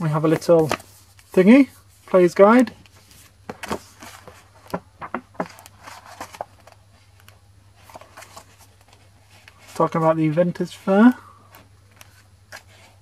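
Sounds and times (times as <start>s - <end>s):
paper rustling: 0.0s - 10.2s.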